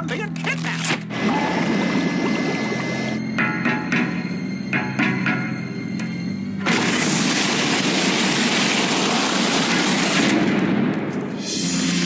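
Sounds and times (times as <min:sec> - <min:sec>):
music: 0:00.0 - 0:12.0.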